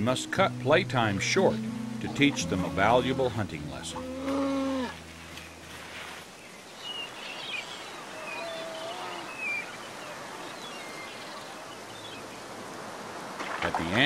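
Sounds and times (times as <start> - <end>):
gulls calling: 0.0 - 5.1, 6.7 - 12.5.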